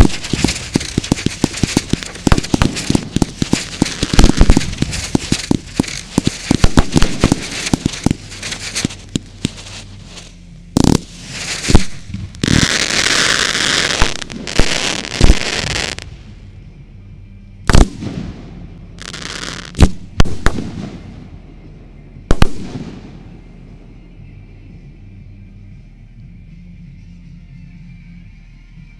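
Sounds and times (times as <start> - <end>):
fireworks bangs: 0.0 - 16.0
fireworks crackling: 0.0 - 16.1, 19.0 - 21.0.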